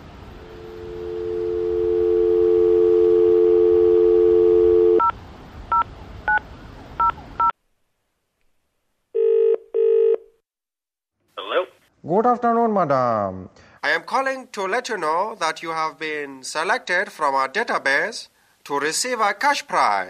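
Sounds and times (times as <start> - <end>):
telephone ringing tone: 0.5 - 5.1, 9.2 - 10.3
telephone dial tone: 9.2 - 10.3.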